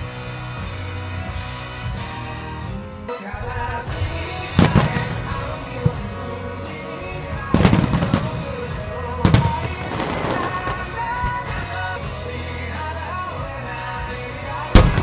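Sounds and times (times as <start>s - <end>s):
music: 0.0s - 15.0s
fireworks bangs: 3.4s - 12.0s, 14.7s - 15.0s.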